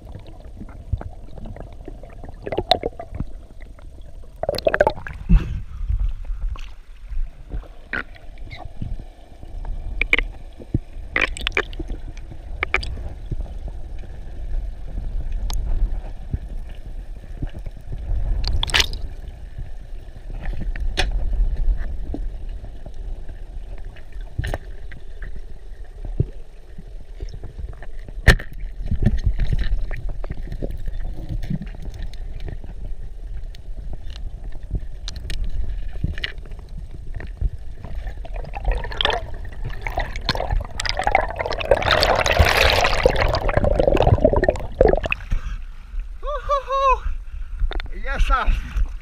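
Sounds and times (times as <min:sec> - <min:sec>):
water splashing: 0:00.0 - 0:05.6, 0:10.0 - 0:13.0, 0:37.8 - 0:45.4
steady low rumble: 0:00.0 - 0:07.9, 0:35.6 - 0:46.3.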